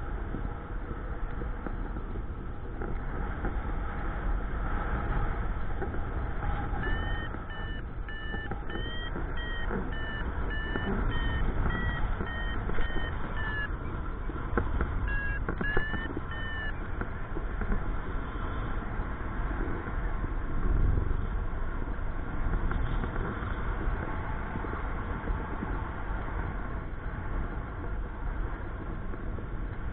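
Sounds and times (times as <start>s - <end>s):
variometer short beeps: 6.8s - 13.8s, 15.0s - 16.9s.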